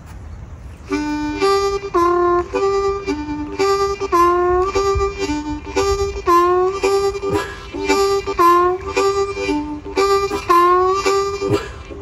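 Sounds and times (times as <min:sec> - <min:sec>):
harmonica playing blues riff: 0:00.8 - 0:12.0.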